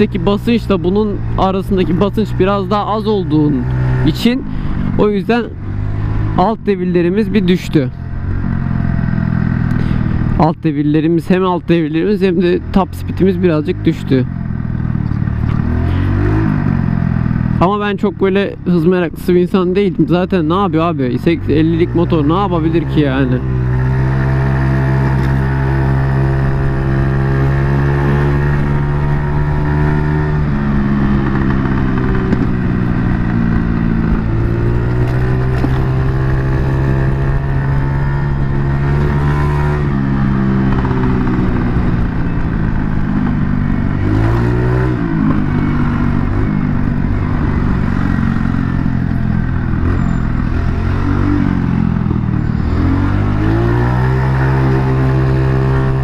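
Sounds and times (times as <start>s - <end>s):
scooter engine revving: 21.4s - 56.0s.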